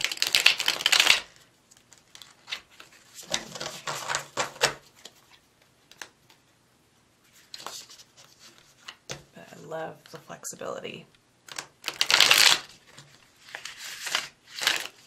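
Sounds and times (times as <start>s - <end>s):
playing cards riffle-shuffled: 0.0s - 6.4s, 7.3s - 9.1s, 11.5s - 15.0s.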